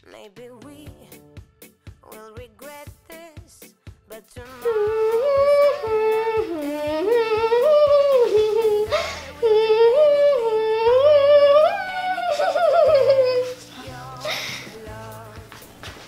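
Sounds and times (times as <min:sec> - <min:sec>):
light beat and bass: 0:00.4 - 0:16.0.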